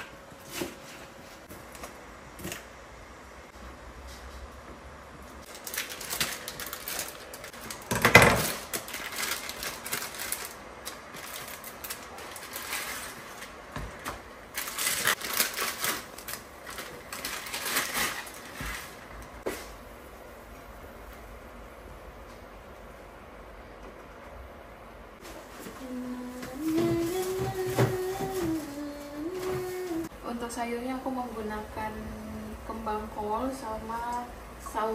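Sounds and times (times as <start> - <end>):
plastic packets crinkling: 5.5 - 19.0.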